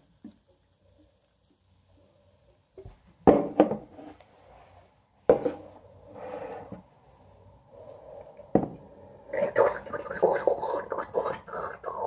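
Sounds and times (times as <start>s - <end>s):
can and glass knocking on table: 3.2s - 3.9s, 8.6s - 8.8s
faint rubbing: 3.9s - 7.0s.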